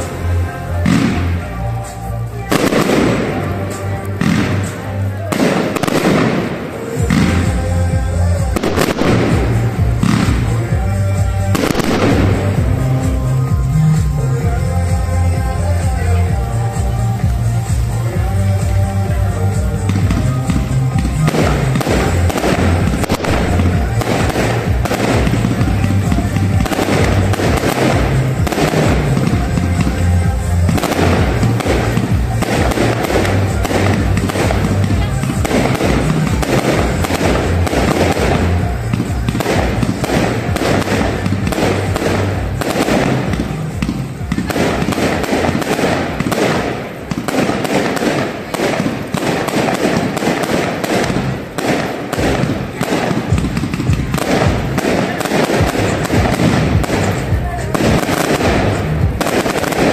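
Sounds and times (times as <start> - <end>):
fireworks bangs and crackles: 0.0 - 59.9.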